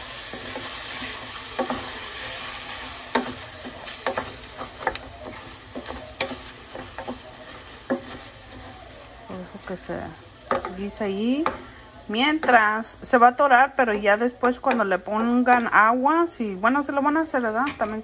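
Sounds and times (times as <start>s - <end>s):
rice sizzling in a pot: 0.0s - 18.0s
wooden spoon scraping a pot: 0.2s - 9.8s
spoon knocking against pot: 10.5s - 10.8s, 13.9s - 15.8s.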